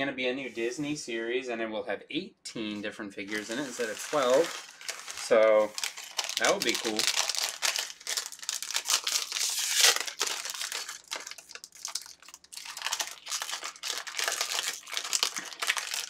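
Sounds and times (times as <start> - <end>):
plastic bag crinkling: 3.3 - 16.0.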